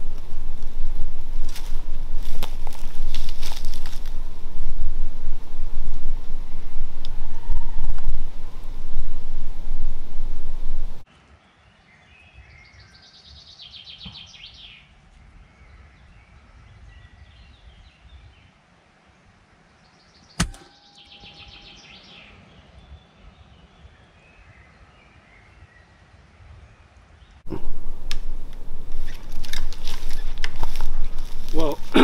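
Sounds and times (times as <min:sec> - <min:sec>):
air rifle shot: 0:20.4 - 0:20.7.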